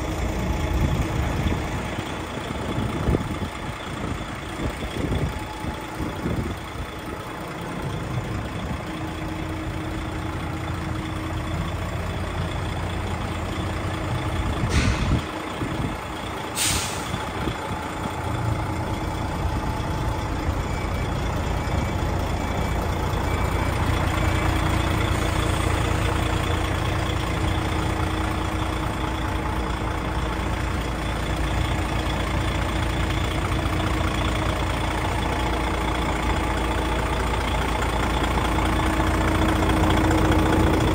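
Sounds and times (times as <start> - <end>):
diesel truck engine idling: 0.0 - 40.9
air hissing bursts: 16.6 - 17.1.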